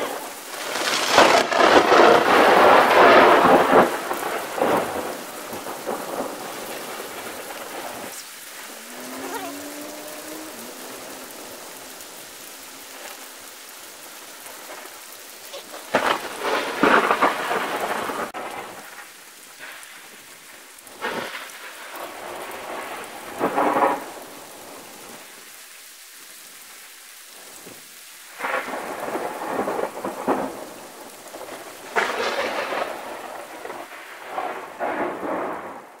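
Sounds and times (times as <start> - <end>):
thunder rumbling: 0.0 - 19.0
steady rain: 0.0 - 36.0.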